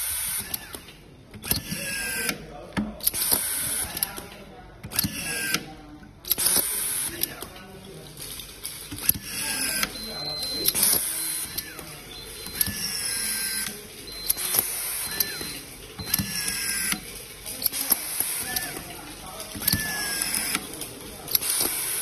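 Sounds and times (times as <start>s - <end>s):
screwdriver motor whining: 9.0s - 22.0s.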